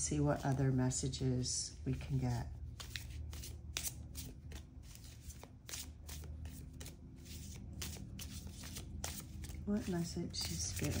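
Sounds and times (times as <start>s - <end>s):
cards being shuffled: 2.6s - 11.0s.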